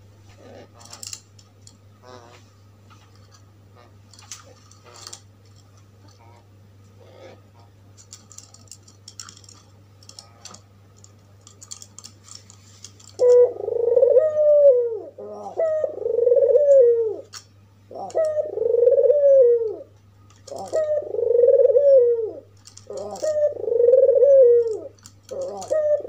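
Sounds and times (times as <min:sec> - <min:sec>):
dove cooing: 0:07.0 - 0:07.7, 0:13.2 - 0:26.0.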